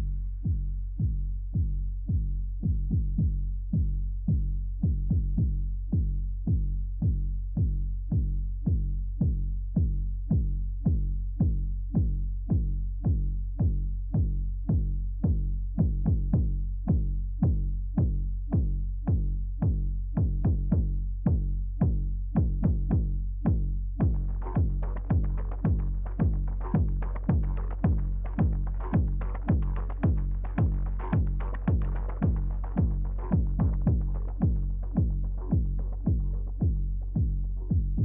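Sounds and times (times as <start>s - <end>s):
low bass drone: 0.0s - 38.0s
drum-machine beat: 24.0s - 38.0s.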